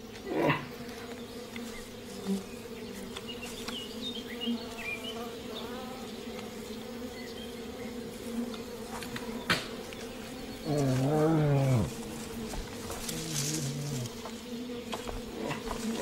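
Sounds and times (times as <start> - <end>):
bees buzzing: 0.0 - 16.0.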